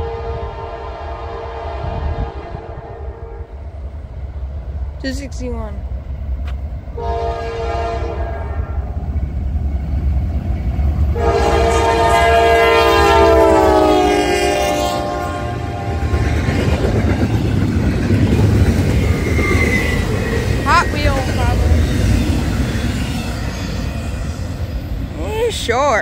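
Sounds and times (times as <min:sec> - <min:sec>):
locomotive air horn: 0:00.0 - 0:03.5, 0:07.0 - 0:08.8, 0:11.1 - 0:16.8
freight cars rumbling and clattering: 0:15.9 - 0:26.0.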